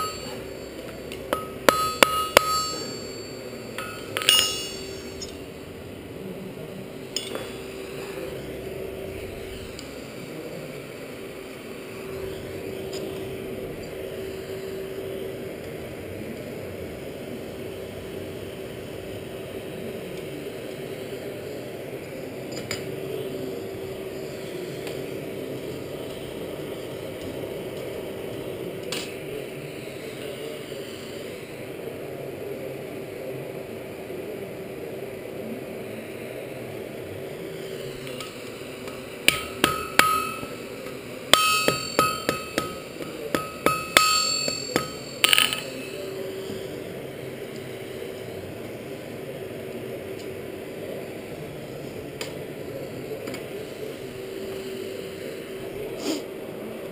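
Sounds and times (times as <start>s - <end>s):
hammer blows ringing on anvil: 0.0s - 5.4s, 7.2s - 7.7s, 39.3s - 40.6s, 41.3s - 45.8s
forge air blower humming: 0.0s - 56.9s.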